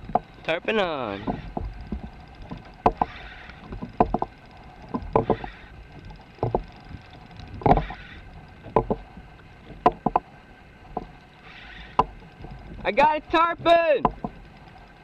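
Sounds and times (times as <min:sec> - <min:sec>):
knocks on a kayak: 0:14.0 - 0:14.4.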